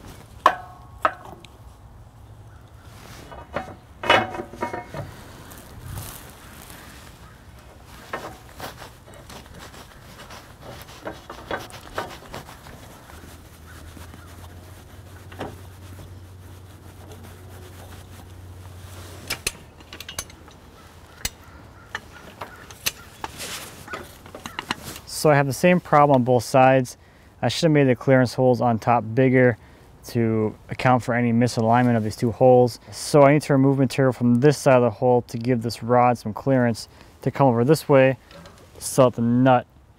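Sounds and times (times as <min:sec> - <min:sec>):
steel parts knocking and clanking: 0:00.4 - 0:01.5, 0:03.3 - 0:05.1, 0:19.2 - 0:20.6
light metal taps and clicks: 0:19.3 - 0:24.8.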